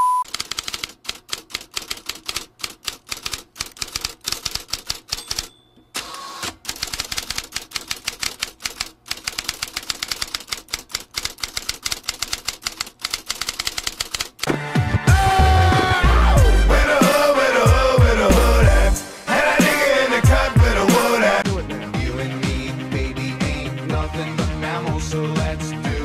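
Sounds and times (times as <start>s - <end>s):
fast typing on keyboard: 0.3s - 5.5s, 6.6s - 14.5s.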